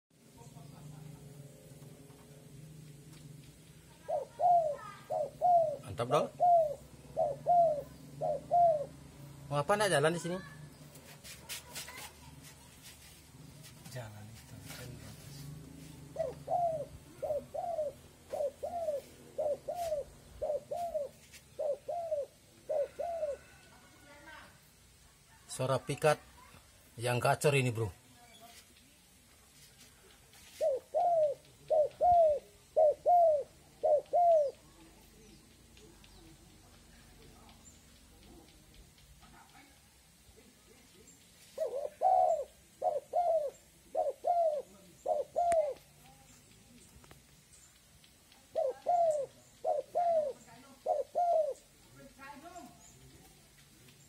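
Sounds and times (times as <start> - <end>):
dove cooing: 3.8 - 9.5, 14.6 - 24.5, 30.4 - 38.7, 41.6 - 46.3, 48.4 - 53.4.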